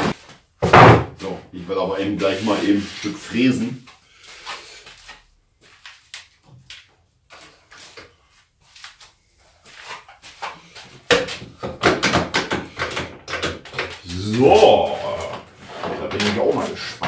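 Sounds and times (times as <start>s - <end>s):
tools and wood knocking: 11.1s - 14.0s.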